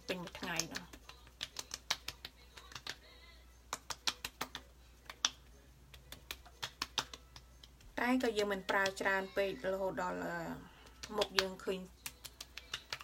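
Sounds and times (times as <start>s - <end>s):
fingertips patting skin: 0.0s - 9.1s, 10.8s - 13.0s.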